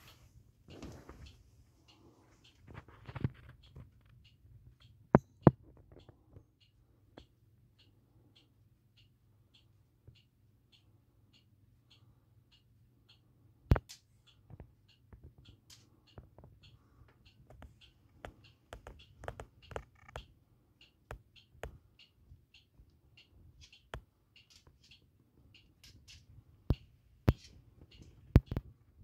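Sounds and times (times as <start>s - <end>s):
fingers tapping on phone: 17.4s - 20.3s, 25.8s - 28.7s.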